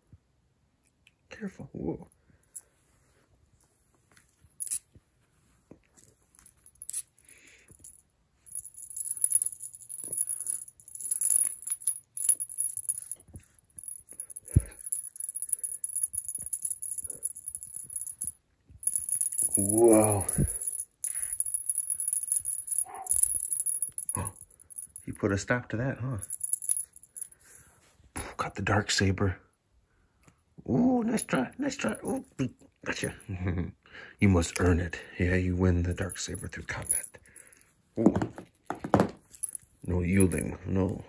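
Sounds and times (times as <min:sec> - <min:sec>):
cat toy jingling and rattling: 0:06.0 - 0:25.2, 0:26.2 - 0:27.6, 0:35.9 - 0:37.6.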